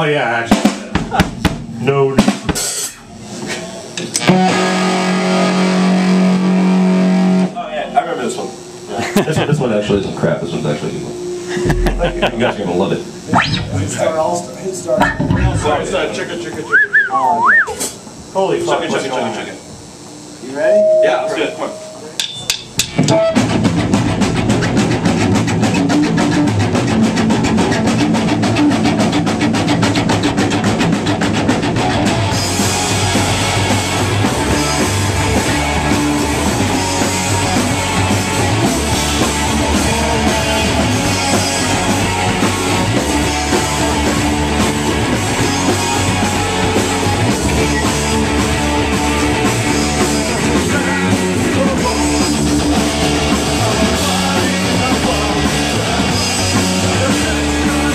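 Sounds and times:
drum kit: 0.0 - 7.6, 11.1 - 16.2, 21.5 - 57.9
electric bass guitar: 2.6 - 7.6, 10.7 - 14.0, 23.0 - 57.9.

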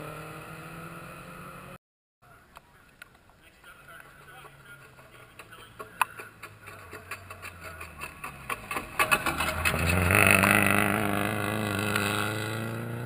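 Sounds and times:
rally car engine passing: 0.0 - 1.8, 4.2 - 13.0
gravel sharp cracks: 2.5 - 10.9.

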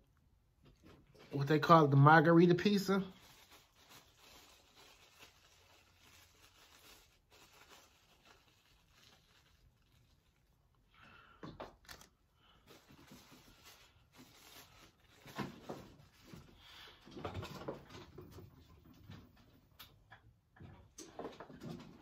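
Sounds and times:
parchment paper rustling: 2.5 - 10.8, 11.6 - 16.6.

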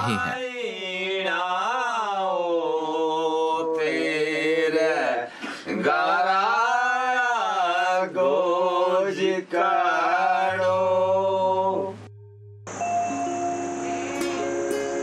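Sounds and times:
man singing slow melody: 0.0 - 9.5
instrumental music with held tones: 10.5 - 15.0
low drone: 10.6 - 15.0.

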